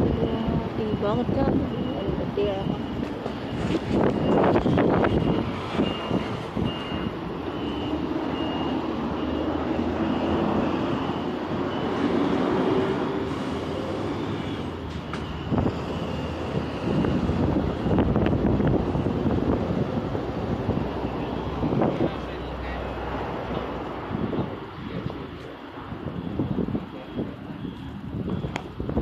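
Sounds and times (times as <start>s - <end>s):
high electronic beep: 0.0s - 12.9s, 13.6s - 18.2s
city street traffic: 0.0s - 29.0s.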